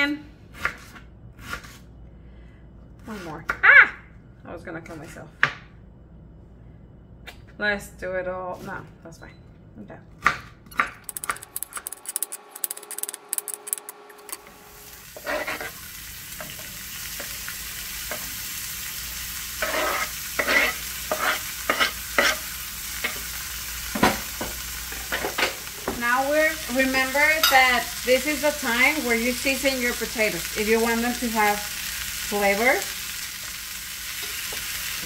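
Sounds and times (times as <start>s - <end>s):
vegetables sizzling in skillet: 14.3s - 35.0s.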